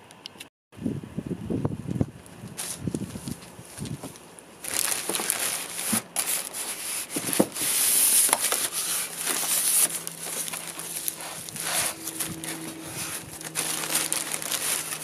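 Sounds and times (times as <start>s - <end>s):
plastic film crinkling: 2.2s - 15.0s
foam rubbing against cardboard: 5.4s - 15.0s.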